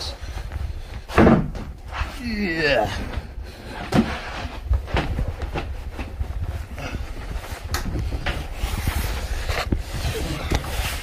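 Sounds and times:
foam cushions knocking and rustling: 1.0 - 1.9, 3.8 - 11.0.

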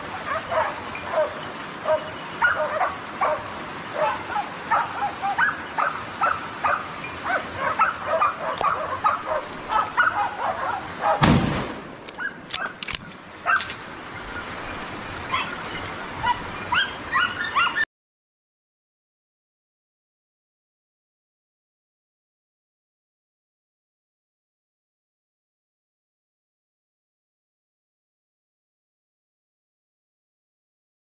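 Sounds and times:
dogs yelping: 0.0 - 11.2, 12.2 - 12.8, 13.4 - 13.8, 15.2 - 17.9
loud bang: 11.2 - 12.0.

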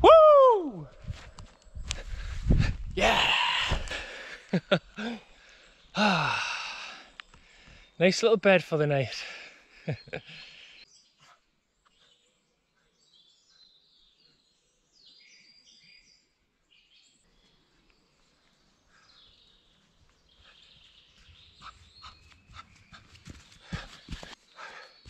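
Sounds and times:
small birds chirping: 3.2 - 8.7, 9.4 - 25.0
footsteps running on moss: 21.1 - 24.4.

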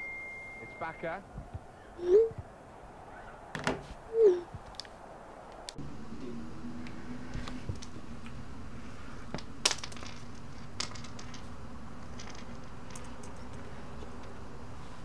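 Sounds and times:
steady low hum: 4.1 - 15.0.

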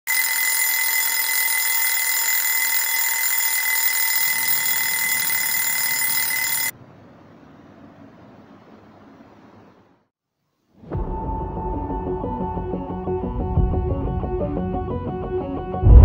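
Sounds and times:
alarm clock ringing: 0.1 - 6.7.

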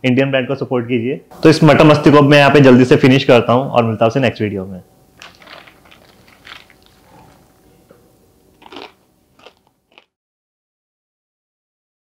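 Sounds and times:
person crunching crisp snacks: 5.2 - 7.5, 8.5 - 10.1.

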